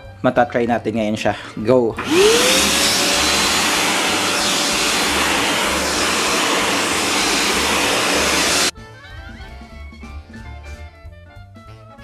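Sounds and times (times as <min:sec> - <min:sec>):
handheld vacuum cleaner running: 0:02.0 - 0:08.7.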